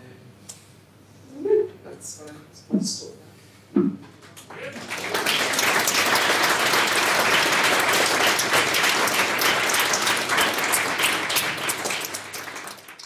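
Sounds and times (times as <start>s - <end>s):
audience applauding: 4.4s - 13.0s.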